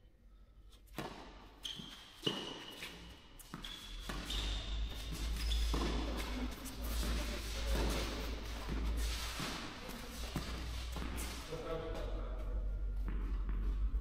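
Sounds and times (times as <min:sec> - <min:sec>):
tennis ball struck by rackets: 0:00.9 - 0:01.5, 0:05.7 - 0:06.4.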